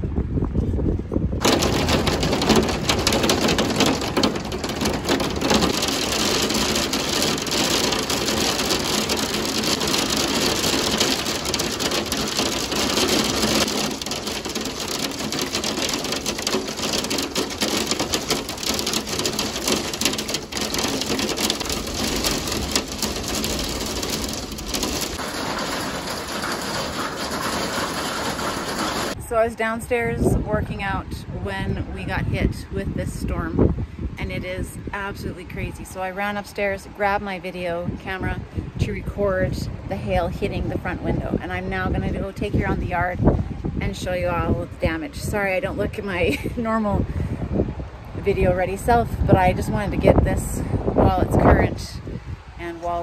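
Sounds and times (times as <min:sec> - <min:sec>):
hail and heavy rain pelting: 0:01.4 - 0:29.2.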